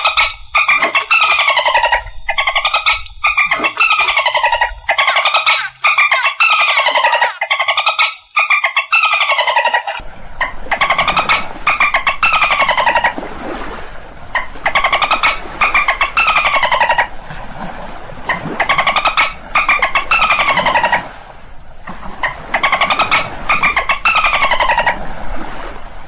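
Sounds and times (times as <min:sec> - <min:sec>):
dolphin burst-pulse calls: 0:00.0 - 0:07.5.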